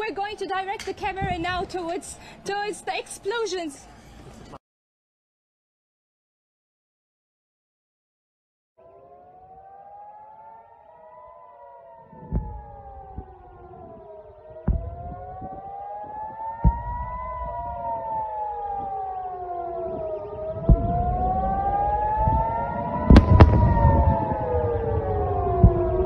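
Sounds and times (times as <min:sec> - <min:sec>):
warning siren wailing: 0:08.8 - 0:26.0
sharp bangs: 0:14.6 - 0:18.9, 0:20.6 - 0:24.4
low rumble: 0:20.5 - 0:26.0.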